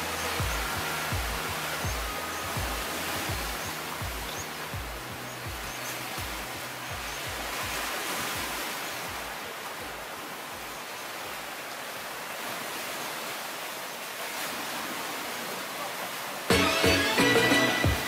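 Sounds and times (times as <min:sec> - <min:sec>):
low thumps: 0:00.0 - 0:09.3
ocean surf hissing: 0:00.0 - 0:18.0.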